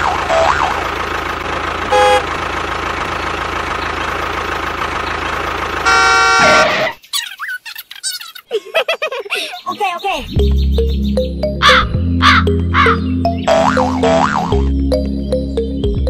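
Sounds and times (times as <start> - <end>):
tractor engine chugging: 0.0 - 6.9
horn honking: 1.8 - 2.6, 5.7 - 7.0.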